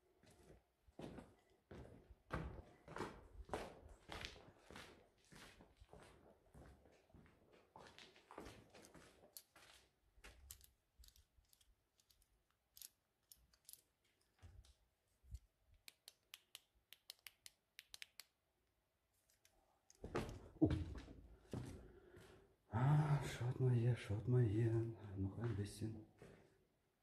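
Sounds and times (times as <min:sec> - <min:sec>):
footsteps crunching on grit: 0:00.2 - 0:10.3, 0:25.5 - 0:26.6.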